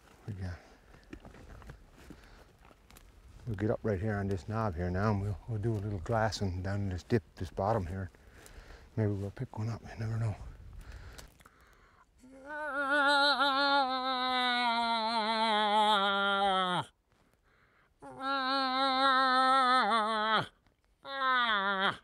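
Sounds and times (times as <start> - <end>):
person imitating moose call: 12.2 - 16.9, 18.0 - 22.0.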